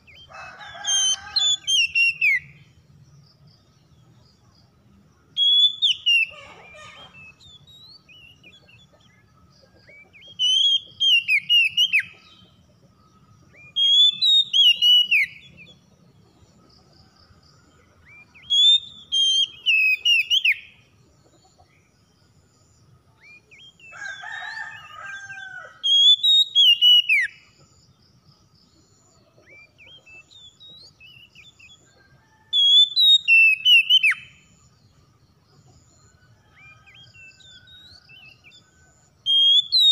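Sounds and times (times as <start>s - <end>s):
bird singing whistled notes: 0.0s - 3.4s, 5.2s - 15.9s, 18.1s - 20.8s, 23.1s - 23.9s, 24.5s - 27.7s, 28.9s - 34.8s, 35.5s - 39.9s.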